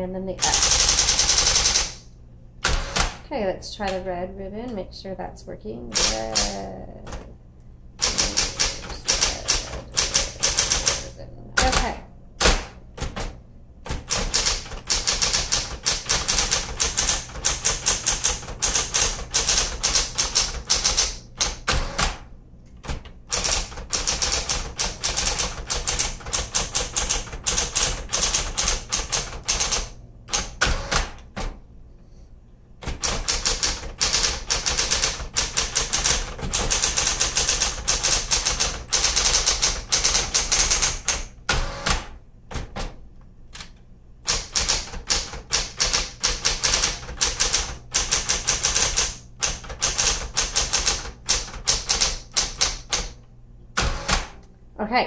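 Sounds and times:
typewriter typebars clattering: 0.4 - 2.0, 5.9 - 7.3, 8.0 - 13.3, 13.9 - 22.2, 22.9 - 31.6, 32.8 - 41.3, 44.3 - 53.2
typewriter motor hum: 0.4 - 4.0, 5.8 - 7.3, 8.0 - 31.6, 32.8 - 54.6.

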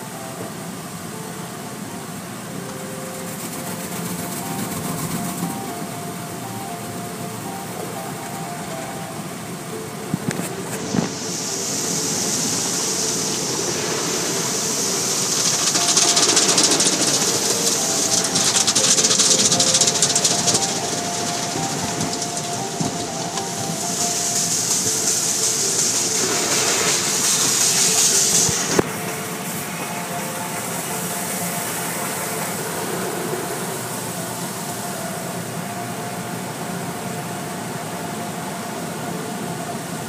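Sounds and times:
car wash machinery: 0.0 - 40.0
loud spray hiss: 0.0 - 40.0.

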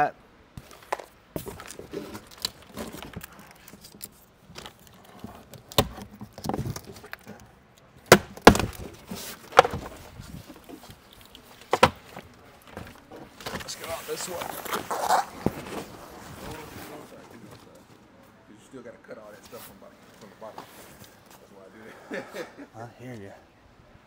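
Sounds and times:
cardboard box rustling: 0.6 - 7.5, 8.3 - 17.8.

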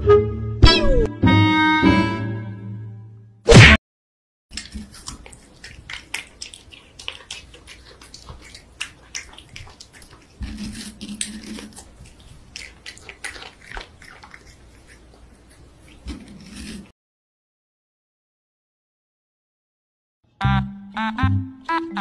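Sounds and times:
cat licking and eating: 4.5 - 16.9.

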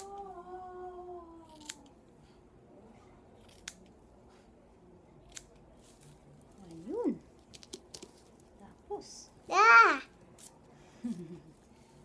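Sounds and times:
scissors snipping hair: 1.4 - 1.9, 3.4 - 3.9, 5.2 - 5.6.

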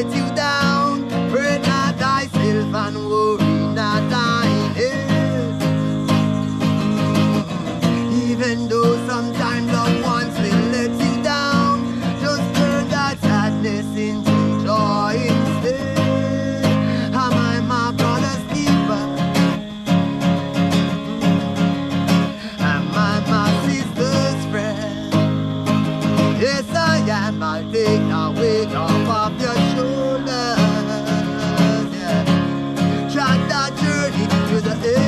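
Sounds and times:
guitar music: 0.0 - 35.0.

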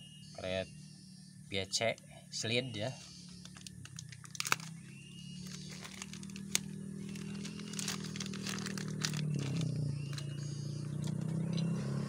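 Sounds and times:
low mechanical hum: 0.0 - 12.0
crinkling and small clicks: 3.3 - 4.8, 5.4 - 11.7.

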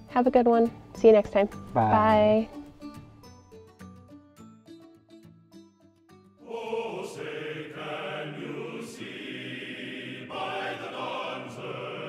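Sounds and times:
choir-like chanting music: 6.4 - 12.0.

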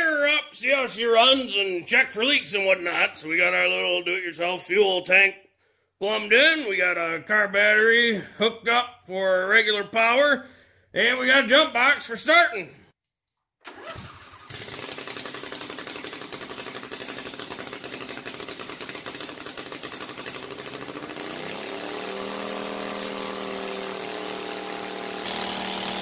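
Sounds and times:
mower engine running: 13.7 - 26.0.

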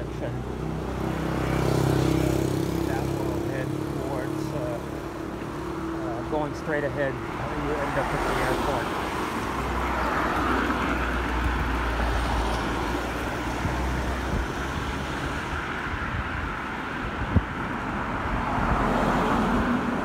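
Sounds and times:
vehicle engine humming close by: 0.0 - 16.5
rush of road noise: 0.0 - 20.0.

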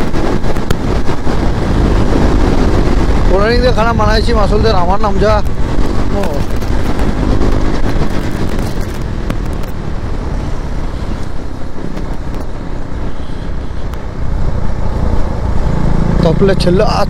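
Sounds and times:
road and wind noise: 0.0 - 17.0
motorcycle engine running: 5.4 - 12.8.

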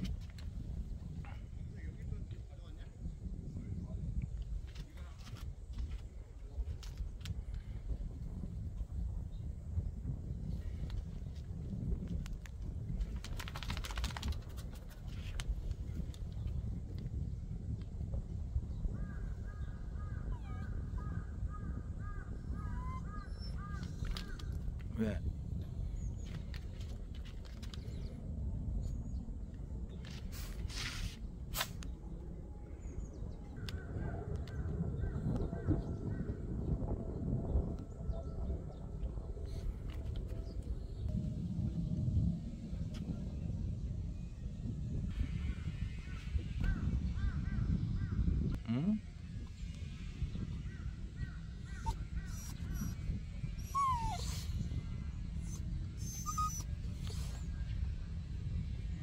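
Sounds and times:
wind rumbling on microphone: 0.0 - 59.0
short rustle: 30.1 - 31.8.

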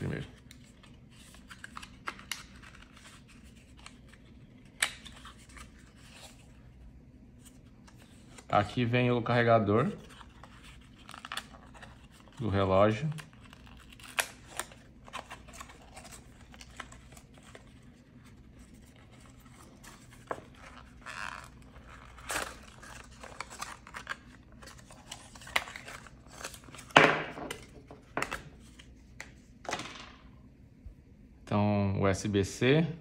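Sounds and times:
paperboard rustling and crinkling: 9.6 - 29.8.

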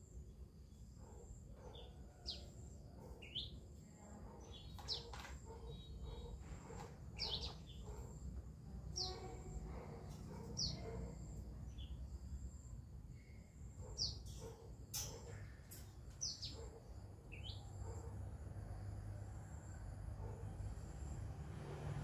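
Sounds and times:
bird chirping: 0.7 - 8.2, 8.9 - 12.3, 13.2 - 18.1.

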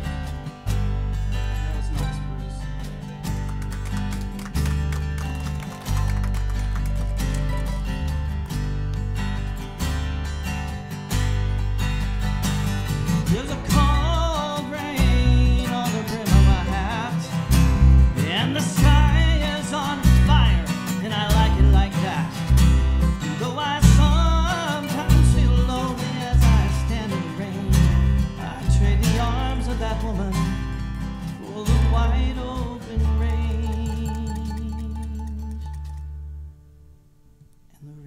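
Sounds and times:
pulsing bass line: 0.0 - 36.6
acoustic guitar strummed: 0.0 - 37.8
man singing: 1.3 - 3.2, 13.1 - 35.8, 37.7 - 38.0.

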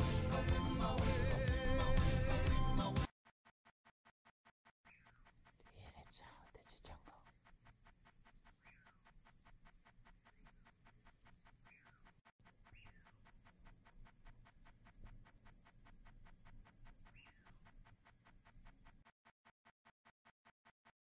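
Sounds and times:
insect buzzing and trilling: 4.9 - 19.1.

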